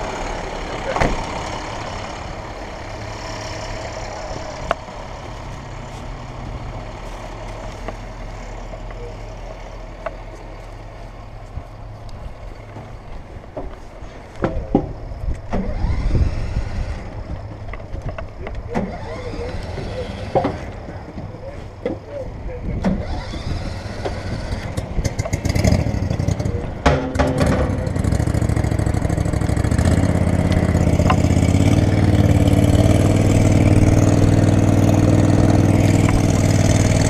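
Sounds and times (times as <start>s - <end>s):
fire truck engine idling: 0.0s - 14.4s
knocks and clatter: 24.7s - 28.6s.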